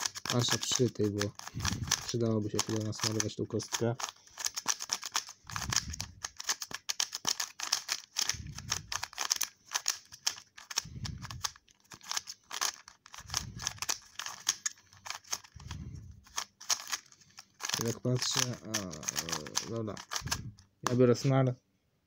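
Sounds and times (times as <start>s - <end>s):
puzzle cube clicking: 0.0s - 21.0s.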